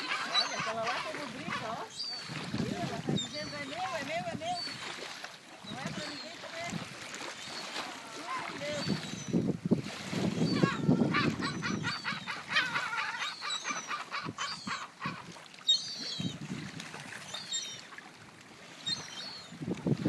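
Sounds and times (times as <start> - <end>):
gulls calling: 0.0 - 9.4, 10.2 - 16.5.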